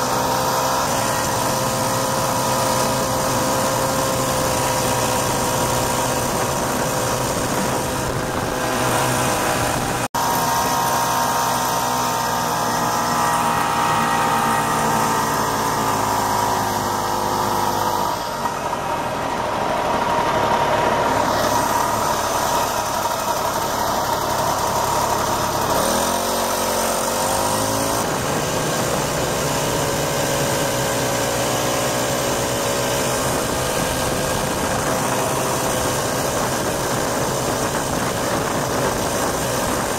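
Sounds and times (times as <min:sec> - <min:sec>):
snowmobile engine revving: 0:00.0 - 0:39.9.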